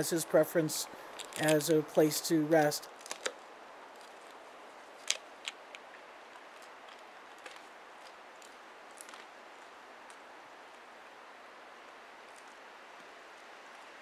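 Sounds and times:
steady faint hiss: 0.0s - 14.0s
wolf chewing crunches: 1.0s - 1.7s, 2.6s - 10.3s.

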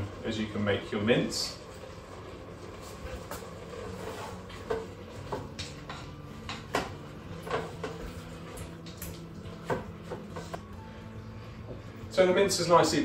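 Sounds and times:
utensil scraping cooker bowl: 3.0s - 8.9s.

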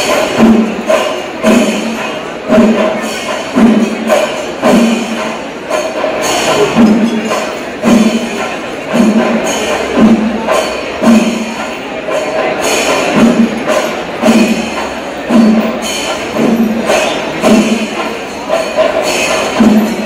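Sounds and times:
cymbals clashing: 0.0s - 20.0s
loud drum strokes: 0.0s - 20.0s.

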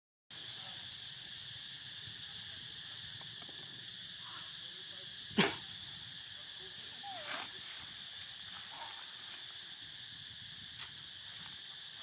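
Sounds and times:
insects chirping: 0.3s - 12.0s.

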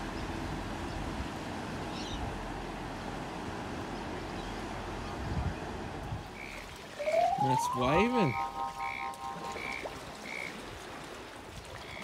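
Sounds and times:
wind buffeting microphone: 4.7s - 6.4s.

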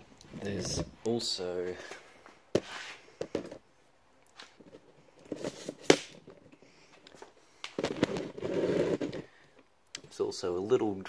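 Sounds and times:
rustling handling noise: 4.3s - 9.5s.

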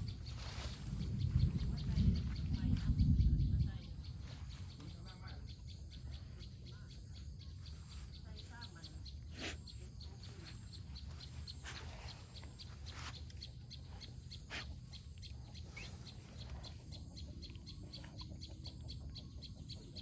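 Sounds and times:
dog sniffing and snuffling: 7.8s - 18.6s.

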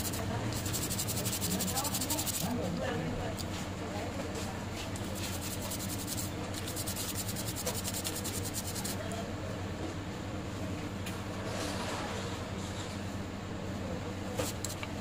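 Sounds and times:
tool scraping circuit board: 0.0s - 2.5s, 5.2s - 9.0s
steady low hum: 0.0s - 11.4s.

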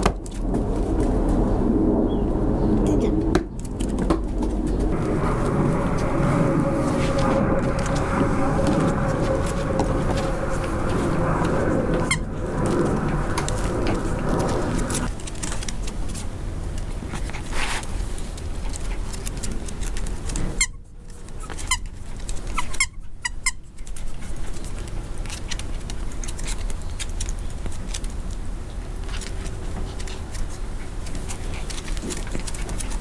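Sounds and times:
low rumble: 0.0s - 17.3s
puppy scuffling with toy: 3.6s - 33.0s.

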